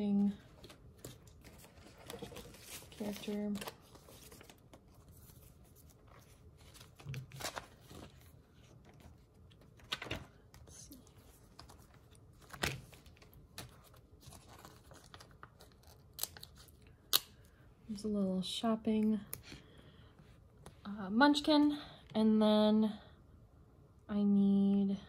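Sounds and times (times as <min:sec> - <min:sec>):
sticker sheets crinkling: 0:00.1 - 0:17.3.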